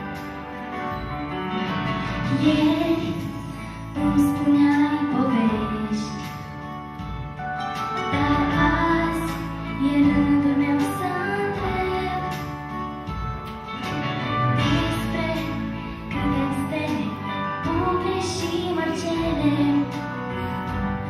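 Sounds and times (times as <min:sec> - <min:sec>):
instrumental accompaniment: 0:00.0 - 0:21.0
woman singing into a microphone: 0:02.2 - 0:06.5, 0:08.1 - 0:12.7, 0:14.6 - 0:20.8.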